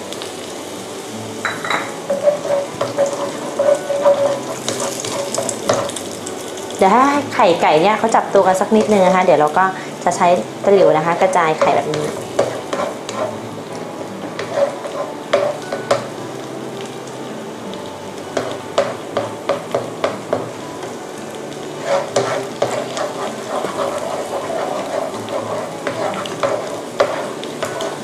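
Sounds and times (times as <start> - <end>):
eggs sizzling in a pan: 0.0 - 28.0
spatula tapping and scraping pan: 1.4 - 6.0, 11.6 - 13.4, 14.2 - 16.2, 18.4 - 20.6, 21.8 - 28.0.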